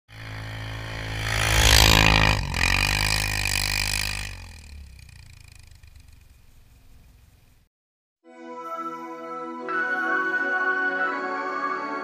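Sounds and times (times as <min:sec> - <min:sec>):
vehicle engine revving: 0:00.1 - 0:07.7.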